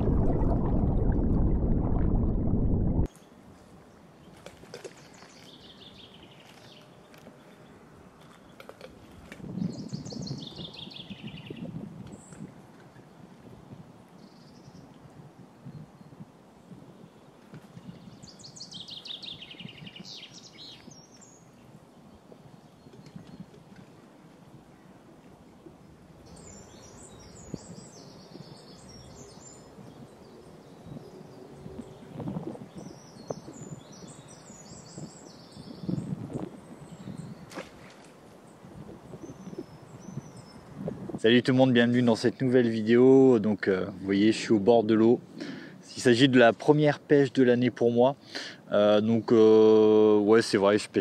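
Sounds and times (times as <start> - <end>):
low rumble: 0.0 - 3.1
faint outdoor background noise: 3.0 - 51.0.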